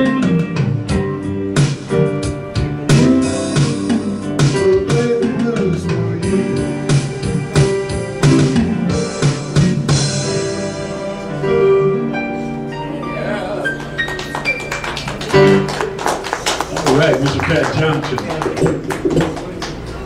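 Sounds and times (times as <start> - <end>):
electric guitar: 0.0 - 14.5
blues band playing: 0.0 - 20.0
drum hits: 7.6 - 10.2, 18.4 - 19.5.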